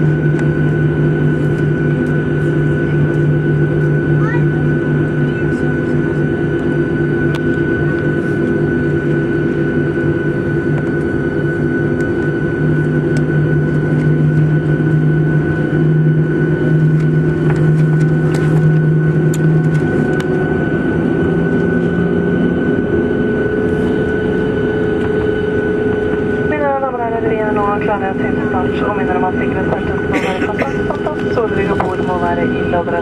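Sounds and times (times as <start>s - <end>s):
jet engine hum in cabin: 0.0s - 33.0s
low drone: 0.0s - 33.0s.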